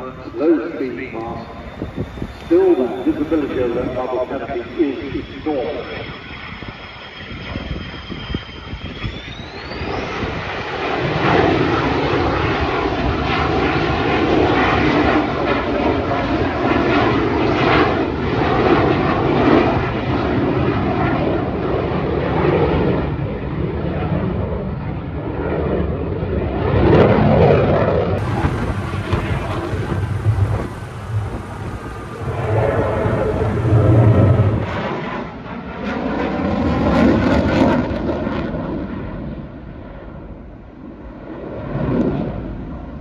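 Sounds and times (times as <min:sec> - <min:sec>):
high jet whine rising: 0:00.0 - 0:11.9, 0:28.2 - 0:35.9
jet engine roar overhead: 0:00.0 - 0:43.0.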